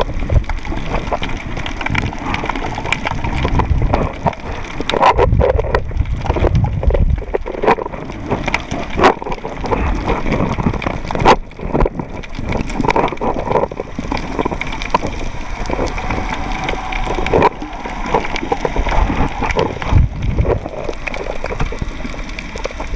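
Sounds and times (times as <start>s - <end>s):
underwater water wash: 0.0s - 22.9s
low rumbles: 11.7s - 22.9s.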